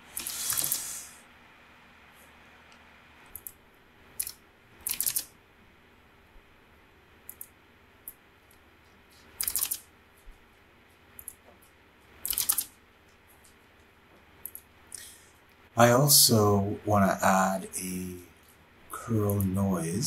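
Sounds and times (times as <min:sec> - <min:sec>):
faint steady hiss: 0:00.0 - 0:20.0
keyboard and mouse clicks: 0:03.3 - 0:03.6, 0:04.2 - 0:05.3, 0:07.3 - 0:08.6, 0:09.2 - 0:09.8, 0:11.2 - 0:12.7, 0:14.4 - 0:14.7.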